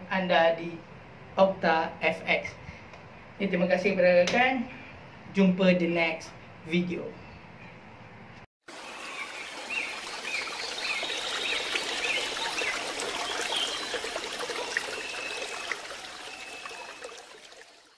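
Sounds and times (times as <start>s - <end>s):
stream water trickling: 8.6s - 17.9s.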